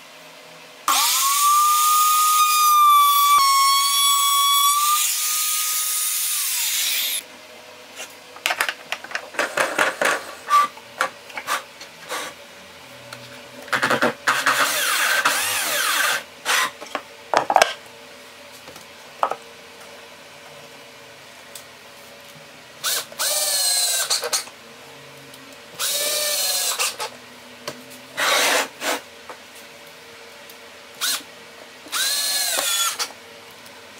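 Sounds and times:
router high whine: 0.8s - 7.3s, 14.3s - 16.8s, 22.8s - 27.2s, 28.2s - 29.0s, 31.0s - 33.2s
power drill spinning up: 0.9s - 7.2s, 14.4s - 16.7s, 25.8s - 27.0s, 28.2s - 28.7s, 31.9s - 33.1s.

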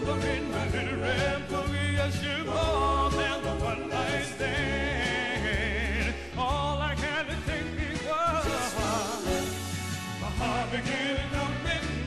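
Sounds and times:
bass line: 0.0s - 12.0s
drums: 0.0s - 12.0s
male vocal group singing: 0.0s - 12.0s.

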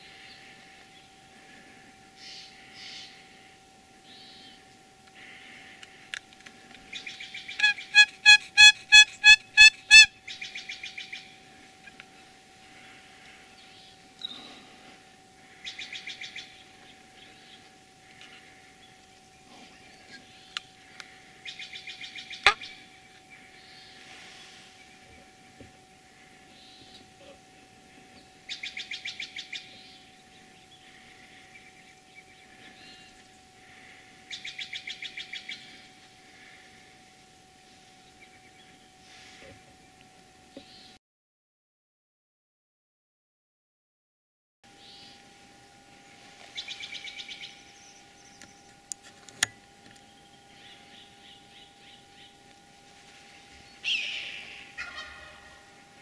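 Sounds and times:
faint bird chirps: 0.0s - 41.0s, 46.0s - 48.9s, 49.9s - 55.8s
bird calling sharp high notes: 6.8s - 12.0s, 20.1s - 25.0s, 50.0s - 55.8s.

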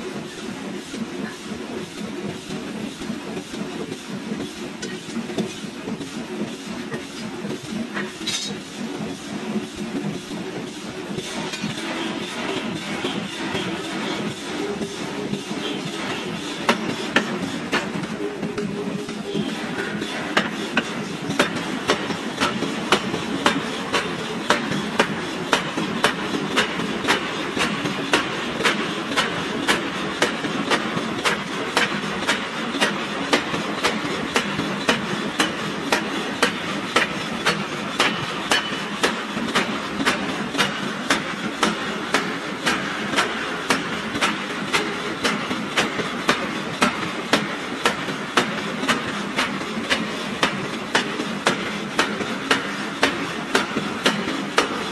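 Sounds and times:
continuous noise: 0.0s - 54.9s
hammer striking hot steel: 8.0s - 8.6s, 32.8s - 38.9s.

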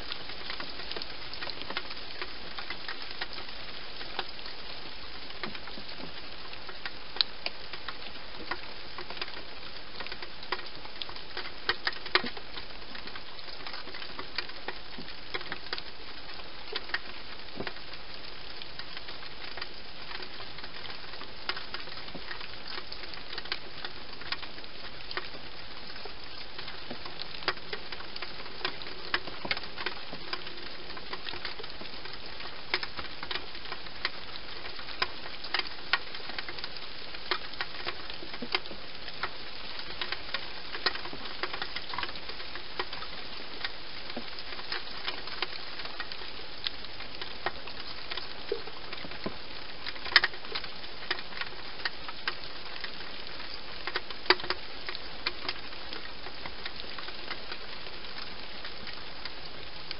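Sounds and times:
small clicks and crackles: 0.0s - 59.9s
steady hiss: 0.0s - 59.9s.

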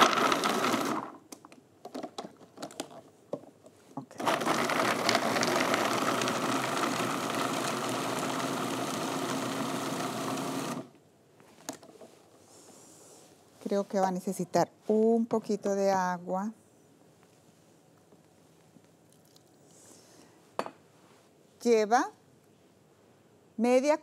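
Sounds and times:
food processor motor chopping: 0.0s - 1.2s, 4.2s - 10.9s.

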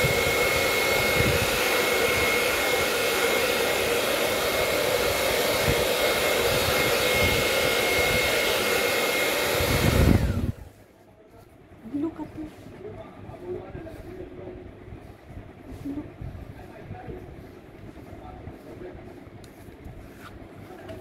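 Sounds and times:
hair dryer blowing: 0.0s - 10.9s.

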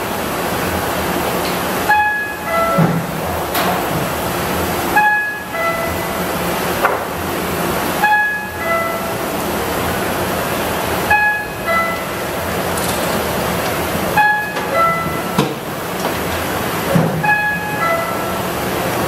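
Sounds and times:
printing press machine noise: 0.0s - 19.0s
two-note electronic warning chime: 1.9s - 2.8s, 5.0s - 6.2s, 8.0s - 9.1s, 11.1s - 12.2s, 14.2s - 15.4s, 17.2s - 18.4s.

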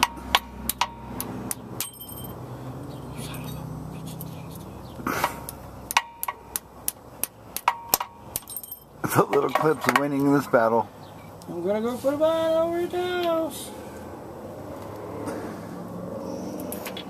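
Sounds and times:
hammer tapping metal: 0.0s - 2.3s, 5.2s - 10.3s.

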